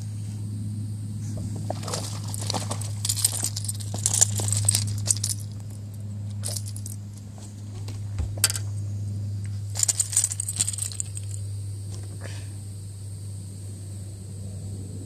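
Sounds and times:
steady low hum: 0.0 - 15.0
fishing tackle clicking and jingling: 1.8 - 7.0, 9.8 - 11.4.

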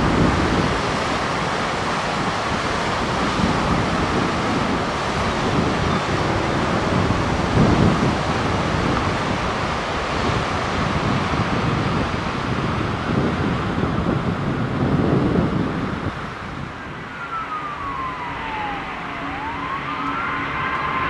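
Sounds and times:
water pouring over a spillway: 0.0 - 14.8
wind gusting on microphone: 0.0 - 21.0.

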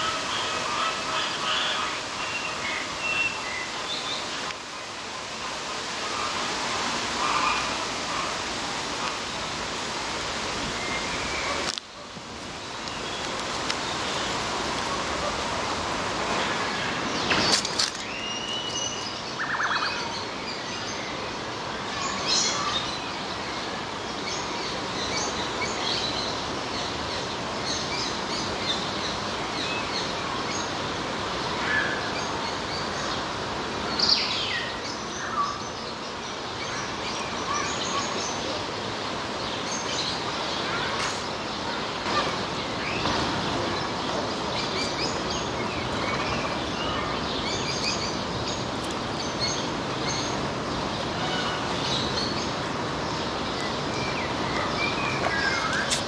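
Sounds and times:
steady outdoor hiss: 0.0 - 56.0
birds chirping: 32.0 - 56.0.

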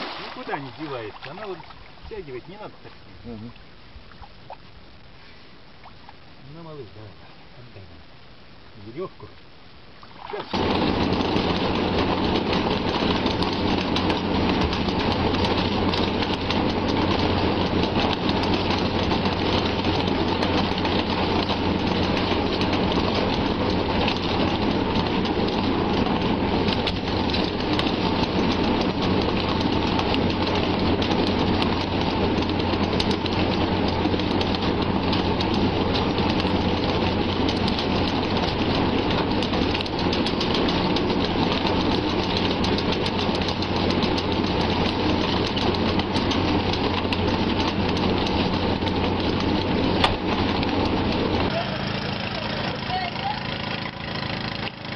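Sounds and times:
fish thrashing and splashing water: 0.0 - 2.1, 10.0 - 10.7
boat engine humming: 0.0 - 54.9.

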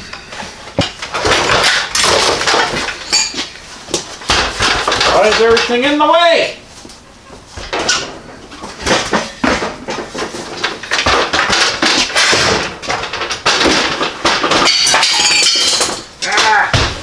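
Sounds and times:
metal tools clattering: 0.0 - 6.0, 7.6 - 16.8.

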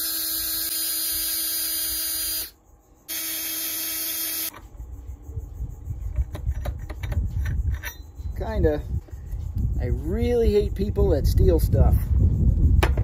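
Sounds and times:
cordless drill spinning: 0.0 - 4.5.

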